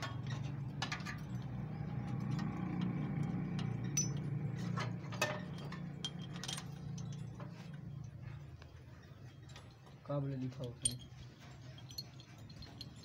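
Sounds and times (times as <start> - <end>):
metal parts clinking: 3.6 - 8.2, 9.4 - 13.0.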